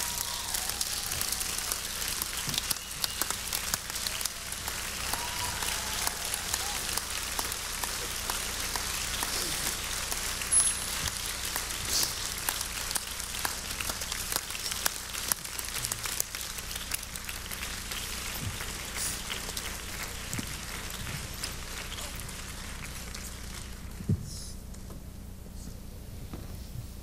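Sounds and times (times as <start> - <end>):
audience applause: 0.0 - 24.1.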